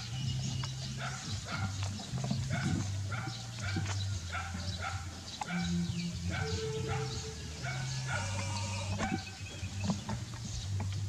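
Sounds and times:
short animal calls: 0:06.4 - 0:09.4.

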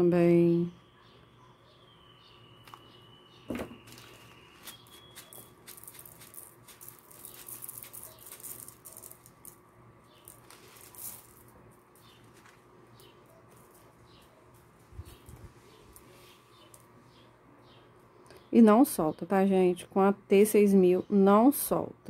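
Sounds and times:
plastic sequins pattering: 0:04.6 - 0:09.6.

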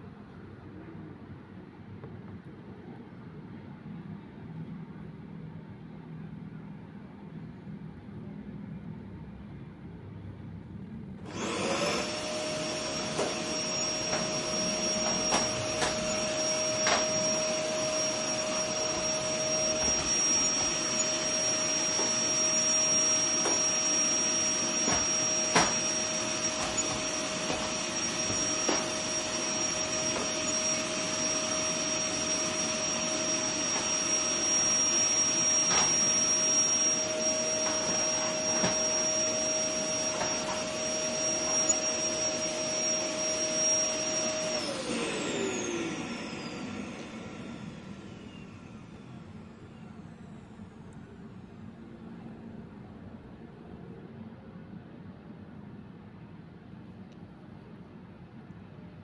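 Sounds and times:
appliance electric motor whining: 0:11.2 - 0:49.6.

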